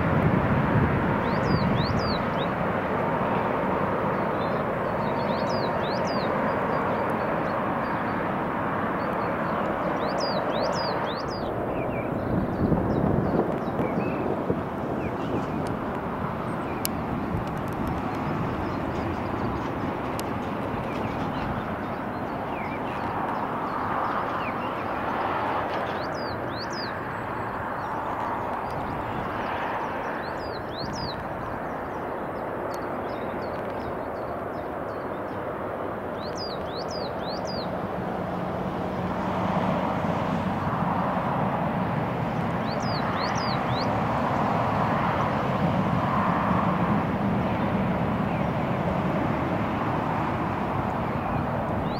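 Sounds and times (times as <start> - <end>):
distant jet engines rumbling: 0.0 - 51.9
small birds chirping: 1.2 - 2.6, 4.1 - 8.3, 8.9 - 14.3, 14.9 - 37.8, 42.3 - 44.5.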